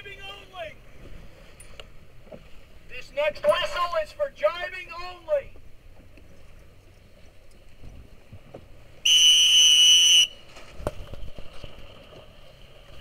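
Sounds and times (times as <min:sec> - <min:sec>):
shrill whistle blast: 0:09.1 - 0:10.4.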